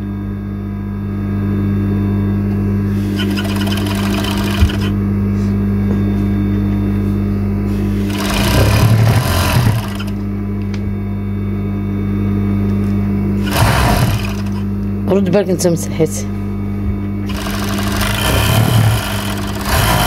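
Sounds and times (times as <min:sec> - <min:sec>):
overlock machine motor humming: 0:02.2 - 0:20.0
machine stitching fabric: 0:03.0 - 0:05.0, 0:08.0 - 0:10.2, 0:13.4 - 0:14.6, 0:17.2 - 0:20.0.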